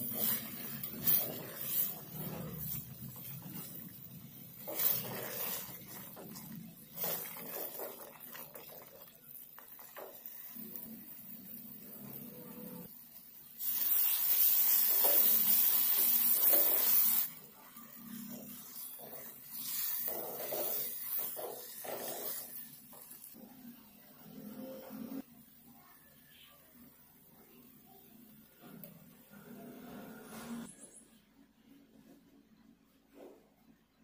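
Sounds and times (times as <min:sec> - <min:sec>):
wooden spatula scraping metal pot: 0:04.6 - 0:08.8.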